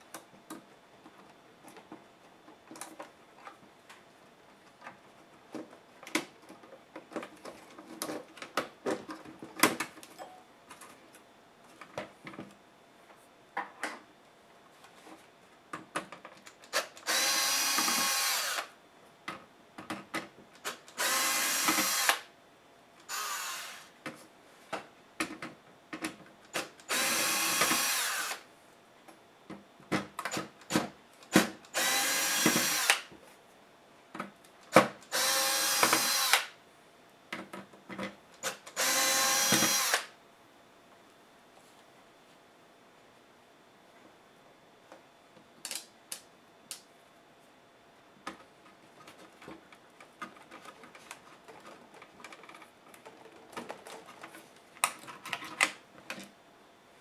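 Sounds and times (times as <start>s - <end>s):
electric screwdriver motor bursts: 16.7s - 18.7s, 20.6s - 22.3s, 23.1s - 23.9s, 26.6s - 28.4s, 31.7s - 33.1s, 35.1s - 36.6s, 38.4s - 40.1s.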